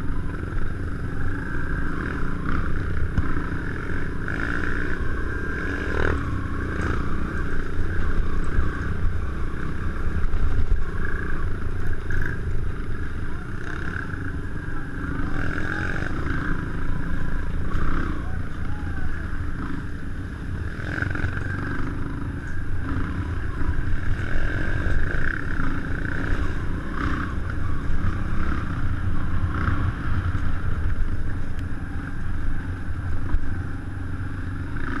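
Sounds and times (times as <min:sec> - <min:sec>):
motorcycle engine revving: 0:00.0 - 0:35.0.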